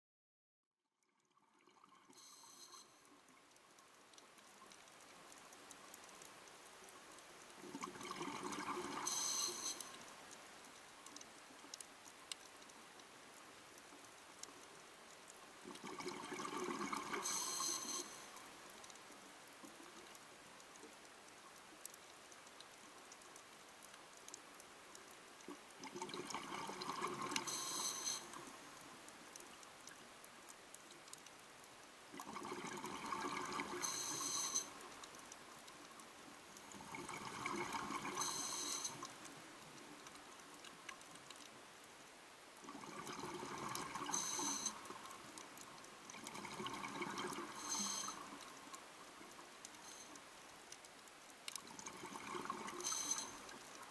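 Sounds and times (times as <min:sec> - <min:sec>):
faint steady hiss: 0:01.0 - 0:53.9
exhaled bubbles underwater: 0:07.6 - 0:09.6, 0:15.7 - 0:17.7, 0:25.8 - 0:28.0, 0:32.2 - 0:34.6, 0:36.7 - 0:39.0, 0:42.6 - 0:45.0, 0:46.1 - 0:48.4, 0:51.6 - 0:53.3.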